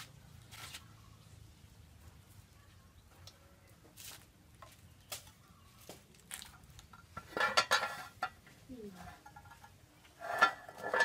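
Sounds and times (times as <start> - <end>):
metal pot and lid clattering: 7.0 - 8.4, 9.0 - 11.0.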